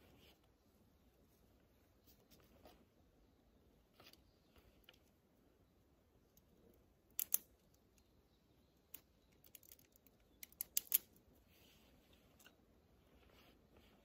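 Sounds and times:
sharp small clicks from handling: 0:07.1 - 0:08.1, 0:08.9 - 0:11.2.

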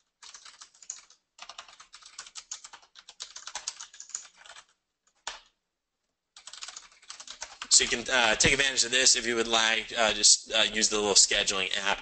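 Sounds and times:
fast typing on computer keyboard: 0:00.0 - 0:05.5, 0:06.4 - 0:08.0.

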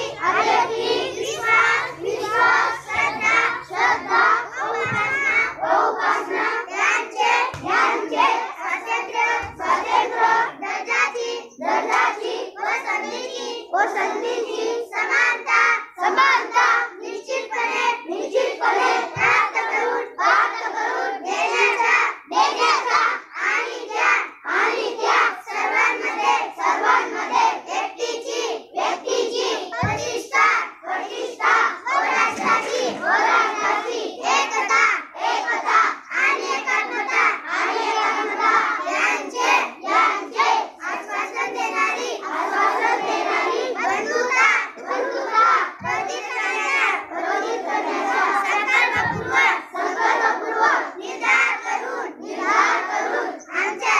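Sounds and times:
children chanting in unison: 0:00.0 - 0:53.9.

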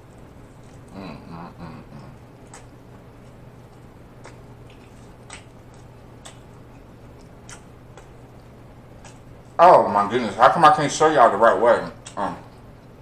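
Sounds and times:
wet chewing: 0:00.0 - 0:09.6
low steady hum: 0:00.0 - 0:13.0.

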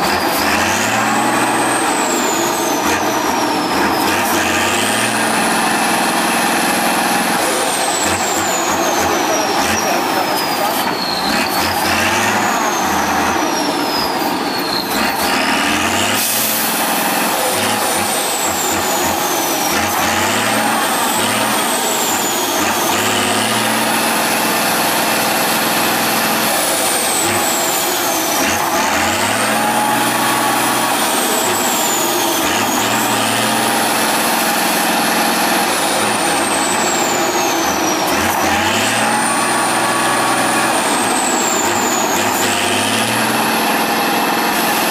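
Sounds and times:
diesel truck engine revving: 0:00.0 - 0:44.9
high whistle: 0:00.1 - 0:05.0, 0:17.3 - 0:24.6, 0:25.3 - 0:43.0.

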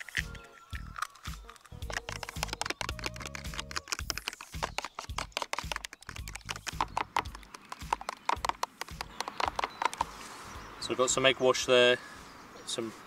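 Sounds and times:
fork beating eggs in plastic tub: 0:01.4 - 0:10.1.

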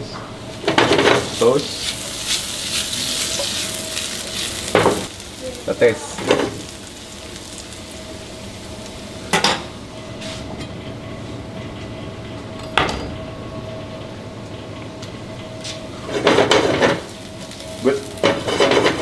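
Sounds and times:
gas burner hum: 0:00.0 - 0:19.0
potatoes sizzling in a pan: 0:00.8 - 0:09.3, 0:17.0 - 0:19.0.

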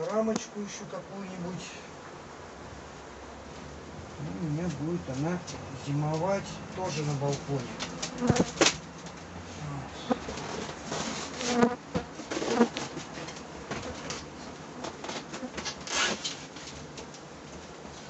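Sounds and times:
honeybees buzzing: 0:00.0 - 0:15.6
wooden hive frames knocking: 0:07.6 - 0:08.9.

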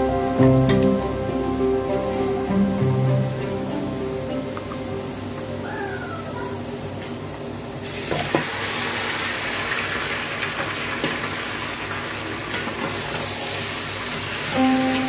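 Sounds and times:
chicken sizzling in a pan: 0:07.8 - 0:15.0.

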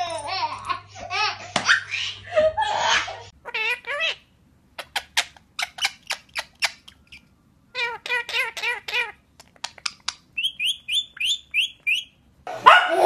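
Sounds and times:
sharp bird chirps: 0:10.4 - 0:12.2.

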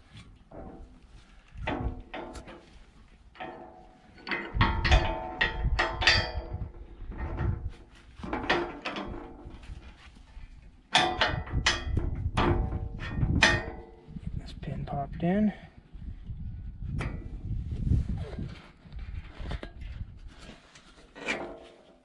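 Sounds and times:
metal tubes clanking: 0:01.6 - 0:07.6, 0:10.9 - 0:14.1.

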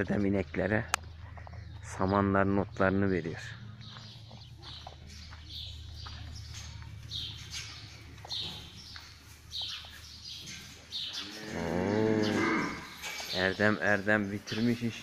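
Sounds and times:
small bird chirping: 0:03.6 - 0:11.7
cow mooing: 0:11.2 - 0:13.0.

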